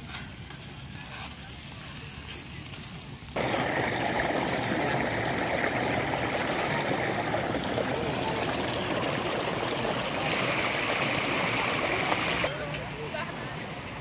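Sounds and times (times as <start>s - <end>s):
water pouring over a step: 2.9s - 12.5s.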